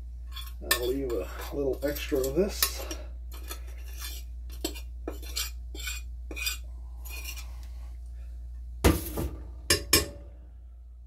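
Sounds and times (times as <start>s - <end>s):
steady low hum: 0.0s - 11.0s
metal spoon scraping a bowl: 0.2s - 7.7s.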